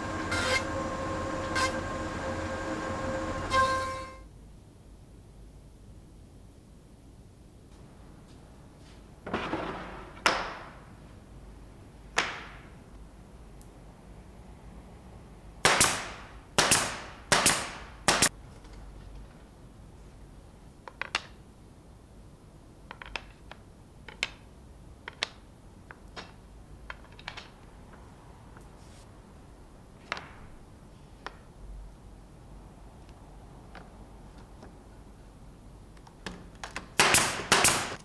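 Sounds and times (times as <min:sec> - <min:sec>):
nail gun firing: 0:15.7 - 0:18.3, 0:37.0 - 0:38.0.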